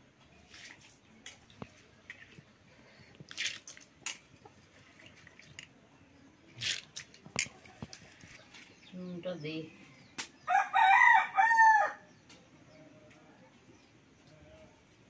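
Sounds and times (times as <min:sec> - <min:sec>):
small splashes and drips: 0:00.3 - 0:02.5, 0:03.2 - 0:05.9
wet lentils squelching by hand: 0:00.4 - 0:05.7.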